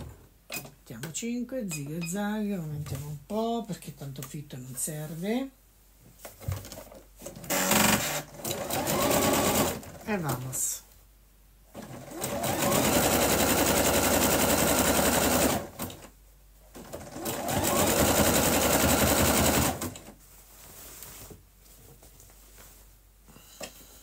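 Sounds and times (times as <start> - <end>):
electric sewing machine running: 7.5 - 9.9, 11.8 - 15.9, 16.8 - 20.0.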